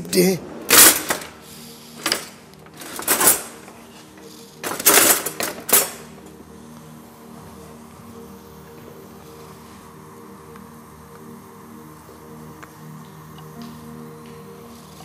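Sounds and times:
kitchen utensils clattering: 0.6s - 3.9s, 4.6s - 6.1s.

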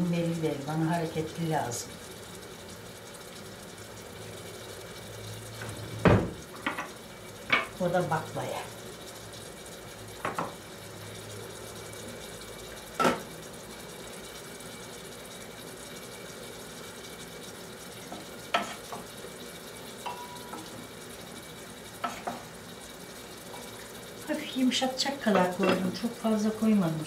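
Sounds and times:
food sizzling in pots: 0.0s - 27.0s
kitchen utensils clinking: 20.0s - 20.7s, 25.2s - 26.0s
glass pot lid knocking: 20.1s - 20.6s.

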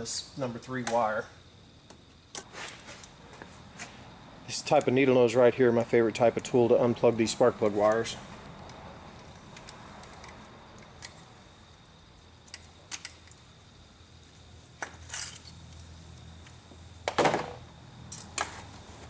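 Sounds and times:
short scraping rustles: 2.4s - 3.1s.

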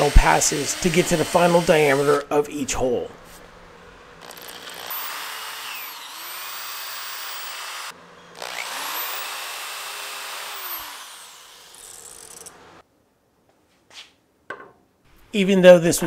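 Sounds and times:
electric drill boring wood: 0.0s - 2.3s, 4.2s - 12.8s.

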